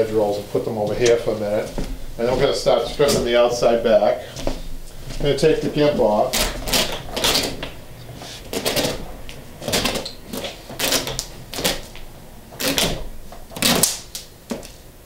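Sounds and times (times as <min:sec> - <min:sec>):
braid tearing off fabric: 0:06.3 - 0:12.0, 0:12.6 - 0:14.2.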